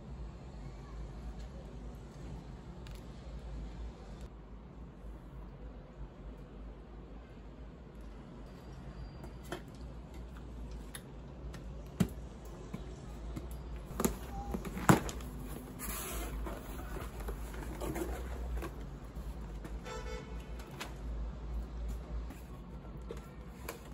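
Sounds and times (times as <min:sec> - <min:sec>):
cardboard flaps rustling: 0:13.8 - 0:19.8.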